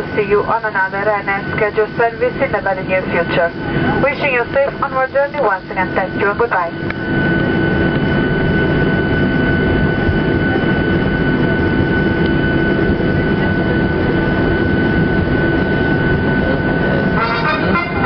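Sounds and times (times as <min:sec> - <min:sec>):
jet engine high whine: 0:00.0 - 0:18.0
jet engines rushing in cabin: 0:00.0 - 0:18.0.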